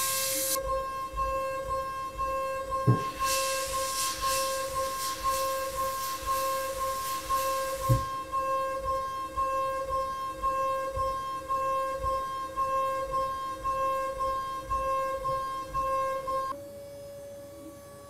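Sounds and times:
hiss: 0:00.0 - 0:00.6, 0:02.9 - 0:09.1
milling cutter high whine: 0:00.0 - 0:18.0.

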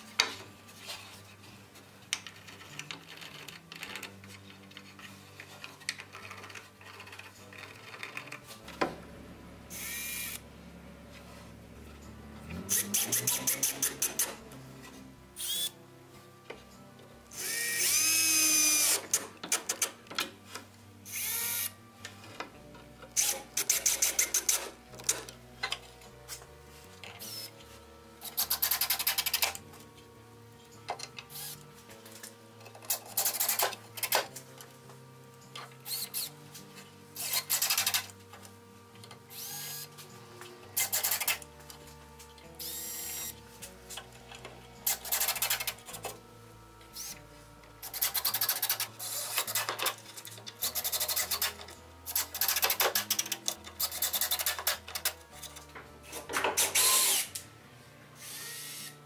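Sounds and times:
cordless drill driving screws: 0:17.4 - 0:19.2, 0:21.1 - 0:21.7, 0:39.3 - 0:39.8, 0:42.6 - 0:43.3, 0:56.6 - 0:57.4, 0:58.2 - 0:59.0.

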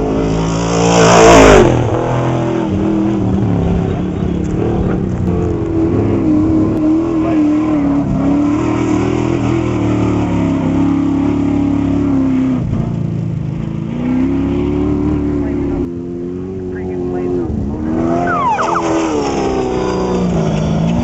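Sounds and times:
truck engine speeding past: 0:16.4 - 0:21.0.

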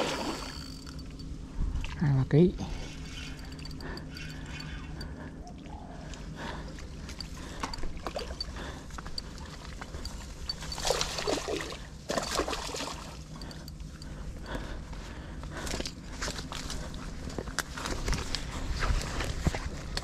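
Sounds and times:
steady low hum: 0:00.0 - 0:20.0
water sloshing against boat: 0:02.7 - 0:14.7.

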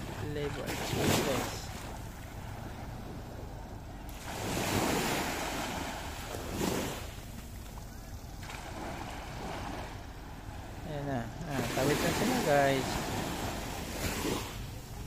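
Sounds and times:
small waves breaking on sand: 0:00.0 - 0:15.0
wind on microphone: 0:00.0 - 0:15.0.

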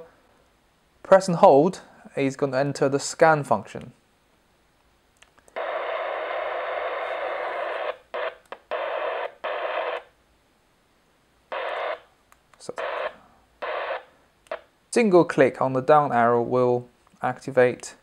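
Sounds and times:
radio receiver static bursts: 0:05.5 - 0:10.2, 0:11.5 - 0:14.7.

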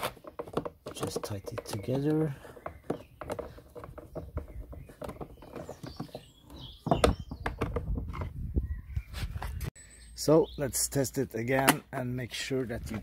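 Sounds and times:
screw and plastic clicking and creaking: 0:00.0 - 0:08.3.

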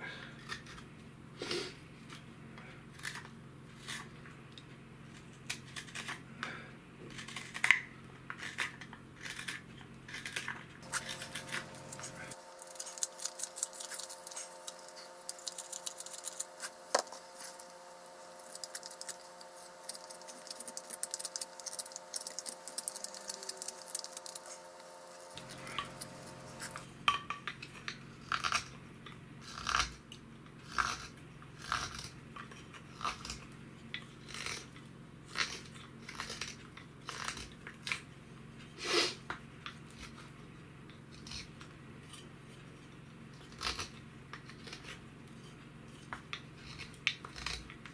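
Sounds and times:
hook knife scraping wood: 0:07.1 - 0:26.8, 0:41.1 - 0:47.9
knife whittling wood: 0:07.1 - 0:26.9.

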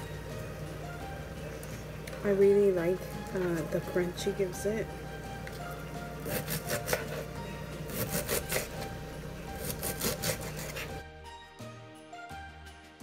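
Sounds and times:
background music: 0:00.0 - 0:13.0
knife cutting on cutting board: 0:06.2 - 0:11.0.

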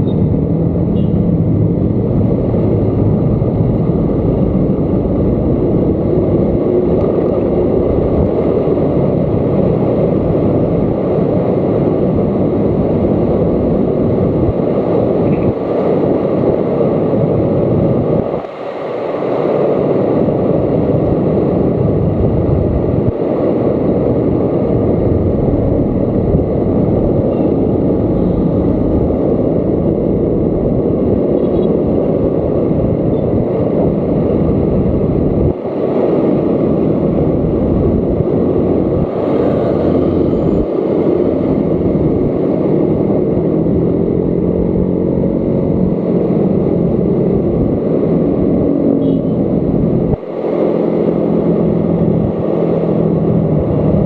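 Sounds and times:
scooter engine humming: 0:00.0 - 0:10.9, 0:21.8 - 0:54.0
wind on microphone: 0:00.0 - 0:54.0.

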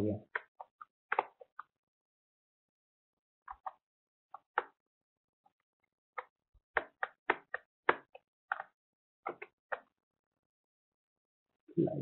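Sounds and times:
mouse and keyboard clicks: 0:00.4 - 0:01.6.

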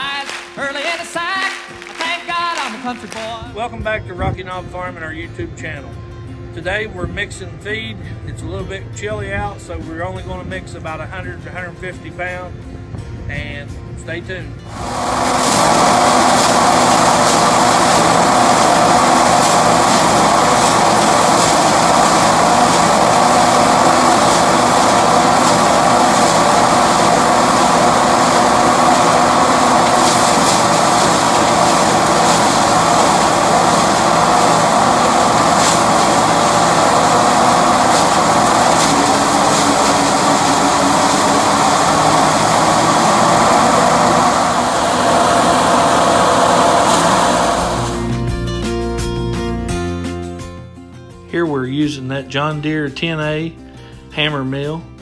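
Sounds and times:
tractor engine under load: 0:14.7 - 0:48.2
hammer mill grinding corn: 0:14.7 - 0:48.3.

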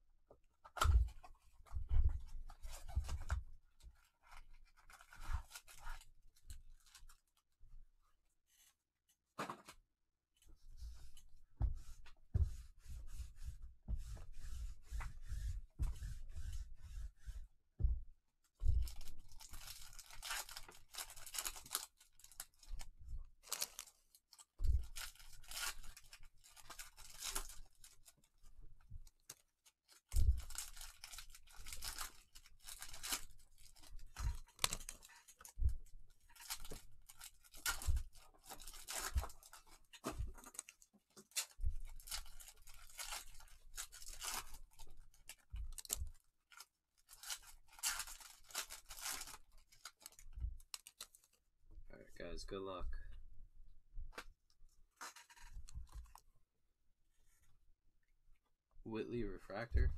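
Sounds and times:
foil wrappers tearing and crinkling: 0:18.8 - 0:22.8, 0:23.4 - 0:28.1, 0:29.2 - 0:35.5, 0:36.3 - 0:51.4.

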